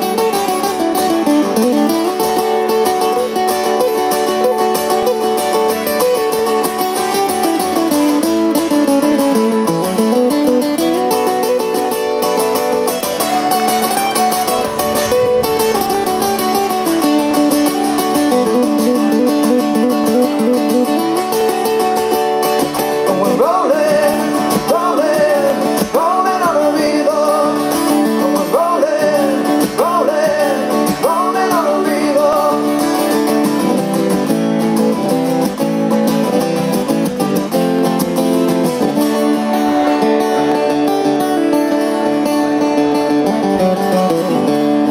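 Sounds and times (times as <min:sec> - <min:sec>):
acoustic guitars playing: 0:00.0 - 0:44.9
person singing: 0:22.9 - 0:33.3.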